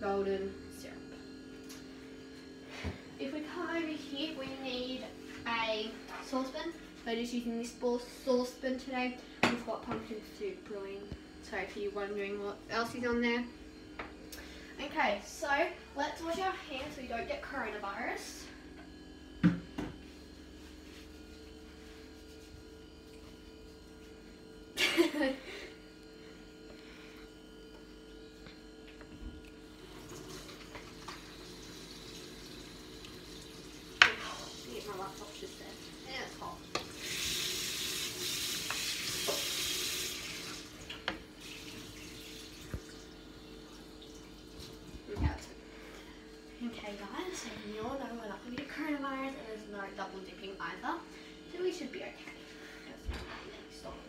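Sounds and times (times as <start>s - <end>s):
electrical hum with tones: 0.0s - 54.0s
tap running into steel sink: 38.6s - 39.6s.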